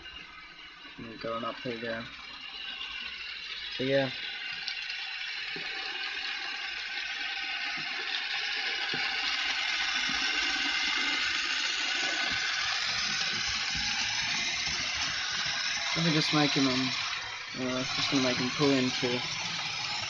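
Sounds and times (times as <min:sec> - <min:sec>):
model train motor whirring: 0:00.0 - 0:20.0
metal wheels on rails: 0:08.9 - 0:20.0.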